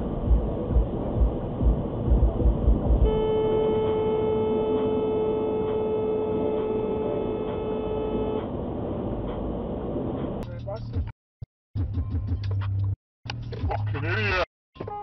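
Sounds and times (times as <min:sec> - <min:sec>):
car horn blast: 0:03.0 - 0:08.6.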